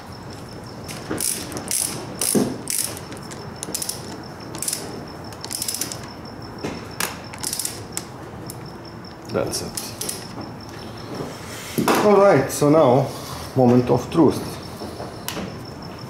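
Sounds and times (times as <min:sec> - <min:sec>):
ratchet wrench clicking: 0:01.2 - 0:04.8, 0:05.4 - 0:06.1, 0:07.3 - 0:07.8.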